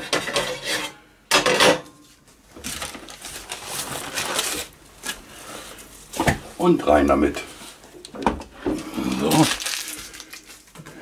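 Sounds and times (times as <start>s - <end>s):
baking paper crinkling: 2.5s - 6.1s, 8.8s - 11.0s.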